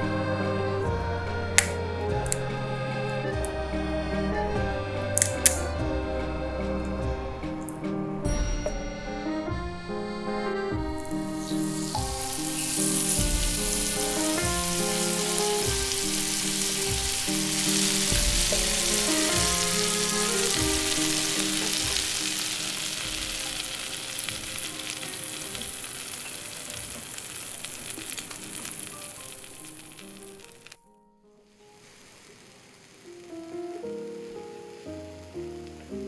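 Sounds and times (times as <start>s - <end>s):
soft background music: 0.0s - 32.4s, 33.0s - 36.0s
steak sizzling in a frying pan: 11.0s - 30.8s, 31.6s - 36.0s.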